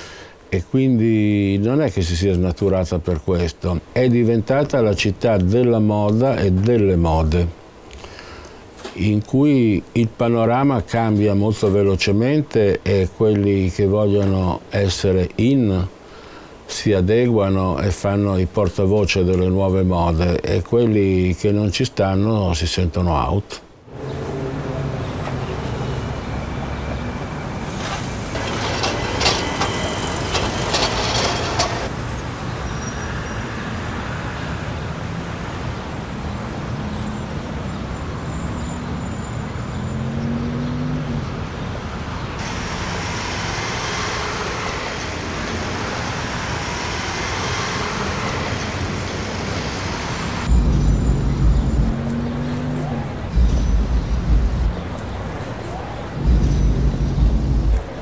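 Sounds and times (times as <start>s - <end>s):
street traffic passing: 0.0s - 58.0s
engines accelerating away: 23.9s - 58.0s
heavy low rumble: 42.4s - 58.0s.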